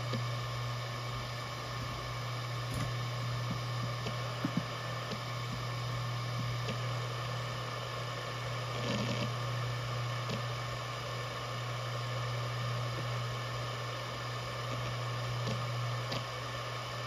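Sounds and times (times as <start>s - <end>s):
hard drive humming: 0.0s - 17.0s
faint hard drive clicks: 2.6s - 5.7s, 6.3s - 7.0s, 10.2s - 10.6s, 12.9s - 13.2s, 14.6s - 16.4s.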